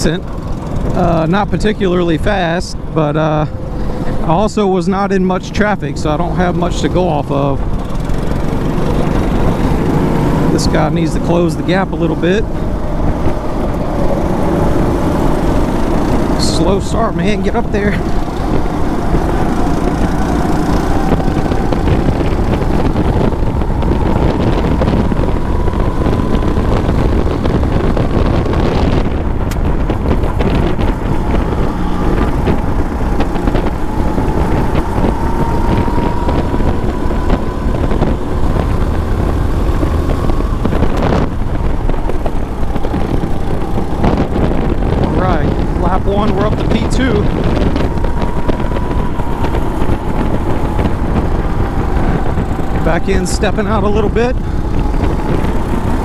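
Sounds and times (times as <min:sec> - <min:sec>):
go-kart motor at full throttle: 0:00.0 - 0:56.0
wind rushing over microphone: 0:00.0 - 0:56.0.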